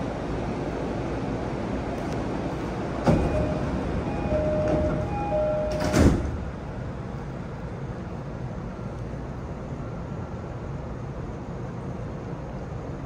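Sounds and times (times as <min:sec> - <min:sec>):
train car low hum: 0:00.0 - 0:13.0
train doors shutting thud: 0:03.0 - 0:06.6
alternating tone door chime: 0:03.2 - 0:06.0.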